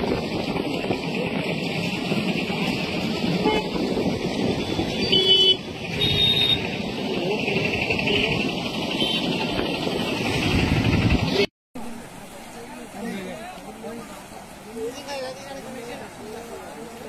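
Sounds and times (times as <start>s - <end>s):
outdoor background rush: 0.0s - 17.0s
vehicle horn toots: 3.4s - 3.8s, 4.8s - 6.7s, 8.1s - 9.6s.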